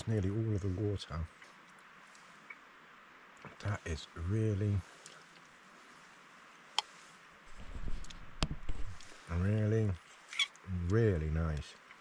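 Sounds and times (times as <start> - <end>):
low rumbling handling noise: 7.5 - 10.0.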